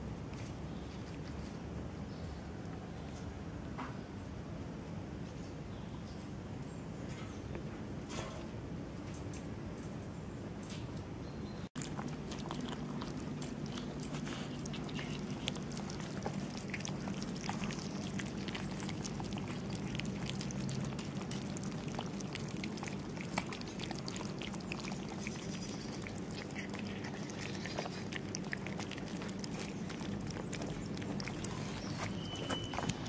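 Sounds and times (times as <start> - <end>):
cats chewing and lapping: 0.0 - 3.6, 11.7 - 33.0
low background hum: 0.0 - 33.0.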